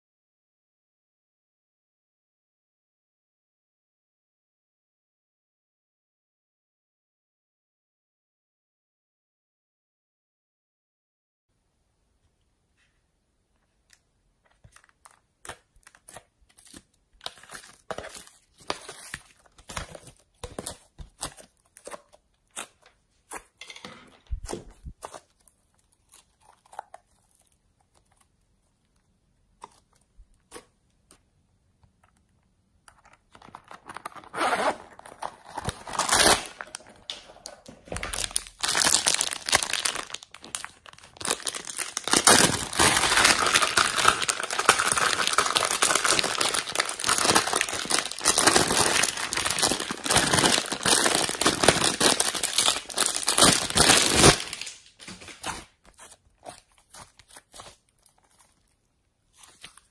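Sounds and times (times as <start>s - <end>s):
slime crackling when squeezed: 38.0s - 54.9s.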